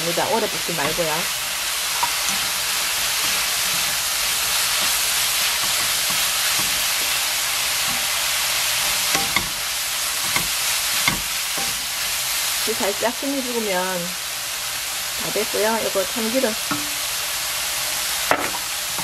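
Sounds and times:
food sizzling in a wok: 0.0s - 19.0s
wooden spatula stirring: 2.0s - 9.6s.

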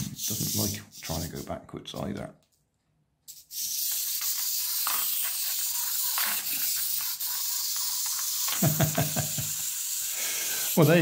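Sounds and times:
clockwork motor whirring: 3.3s - 11.0s.

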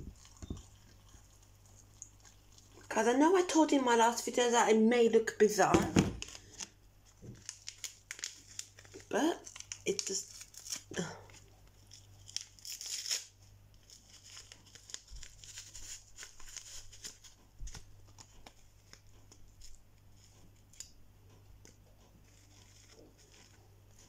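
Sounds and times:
faint low hum: 0.0s - 24.0s
packaging crinkling and tearing: 6.0s - 21.0s, 22.2s - 24.0s.

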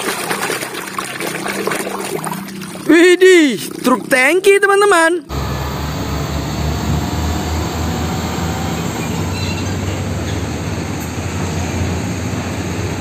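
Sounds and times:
diesel truck engine rumble: 5.3s - 13.0s
road noise: 5.3s - 13.0s.

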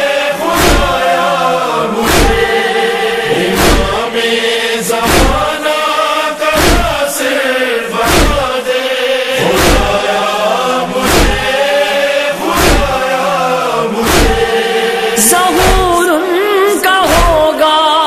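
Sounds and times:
male chorus chanting: 0.0s - 18.0s
deep thump keeping time: 0.6s - 1.1s, 2.0s - 4.3s, 5.0s - 5.6s, 6.6s - 7.0s, 8.0s - 8.5s, 9.4s - 10.1s, 10.9s - 11.6s, 12.5s - 13.1s, 14.0s - 14.7s, 15.6s - 16.0s, 17.1s - 17.4s.

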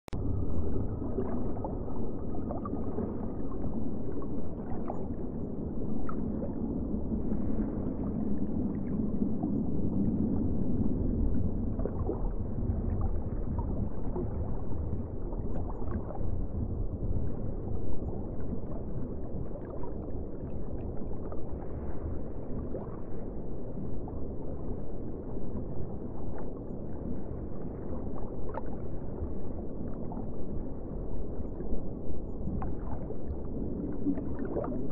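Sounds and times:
aquarium water gurgling: 0.1s - 21.5s, 32.5s - 34.9s.

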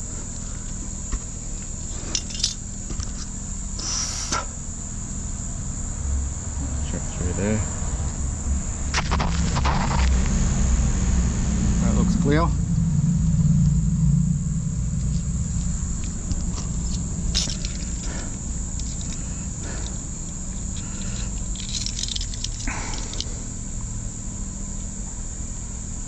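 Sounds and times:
engine humming: 0.0s - 26.0s
steady high-pitched tone: 8.3s - 22.2s.

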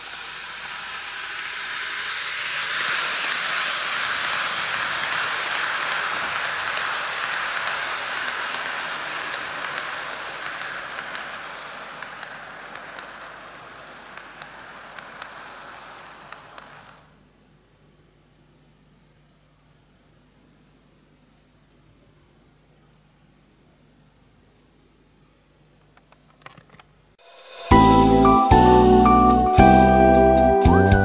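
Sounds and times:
wheels clicking over rail joints: 0.0s - 17.0s
model train wheels and motor rumbling: 0.0s - 17.3s.

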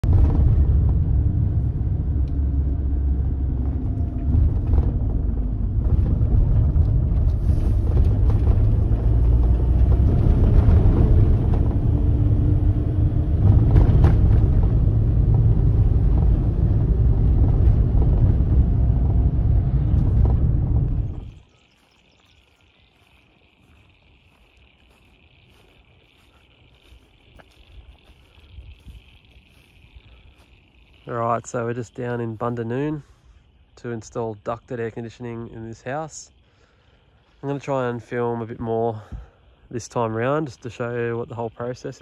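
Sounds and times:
vehicle engine and road rumble: 0.0s - 42.0s.

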